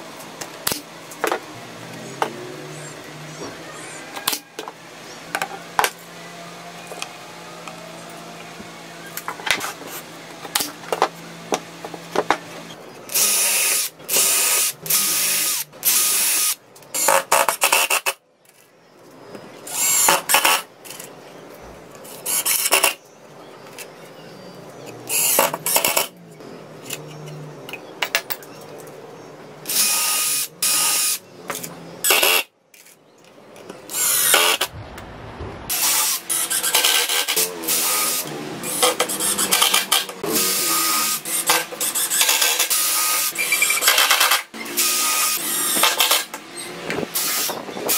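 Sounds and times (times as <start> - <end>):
cordless drill bursts: 13.1 - 18.0, 19.7 - 20.6, 29.6 - 31.2, 33.9 - 34.7, 35.7 - 46.3, 47.2 - 47.9.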